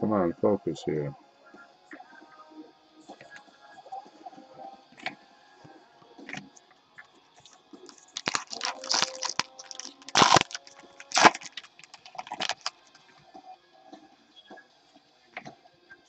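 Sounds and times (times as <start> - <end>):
card pack wrapper tearing: 7.9 - 12.9.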